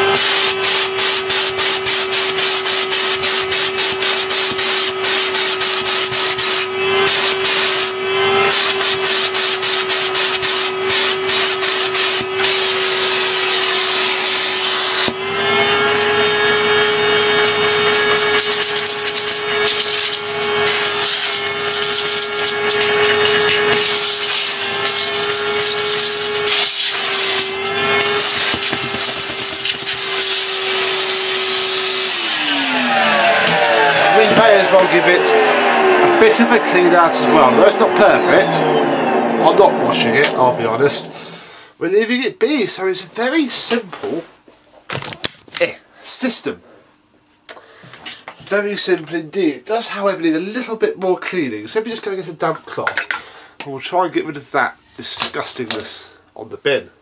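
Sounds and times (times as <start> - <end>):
vacuum cleaner motor whine: 0.0 - 41.5
plastic tool scraping and rattling: 21.0 - 30.6.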